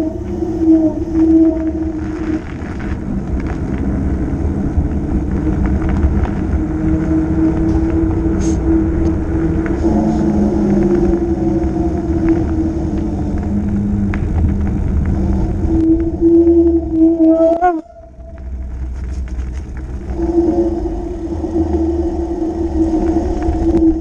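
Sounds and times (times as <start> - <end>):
bike tyres humming on road: 0.0 - 24.0
wind rumble on microphone: 0.0 - 24.0.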